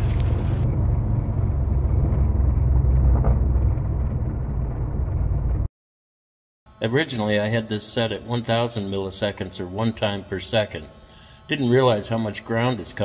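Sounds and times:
aircraft engine idling: 0:00.0 - 0:05.4
wind noise: 0:00.0 - 0:05.7.

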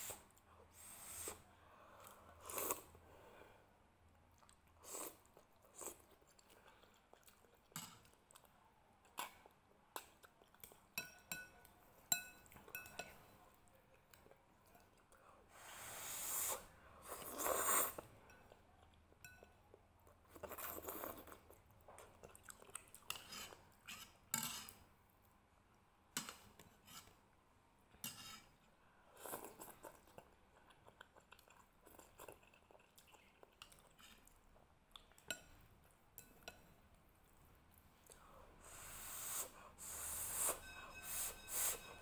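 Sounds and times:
chewing: 0:04.3 - 0:11.0, 0:17.1 - 0:24.2, 0:28.6 - 0:35.6
slurping noodles: 0:15.5 - 0:18.0, 0:38.6 - 0:41.9.

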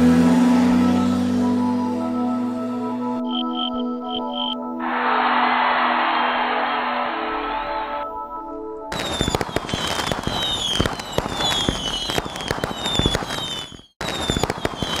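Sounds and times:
dense crackling: 0:08.9 - 0:15.0
short falling whistle: 0:08.9 - 0:15.0.

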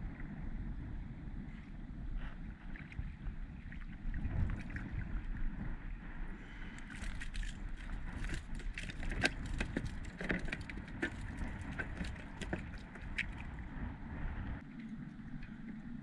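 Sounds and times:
wind rumble on microphone: 0:00.0 - 0:16.0
fishing tackle clicks and rattles: 0:06.8 - 0:13.5.

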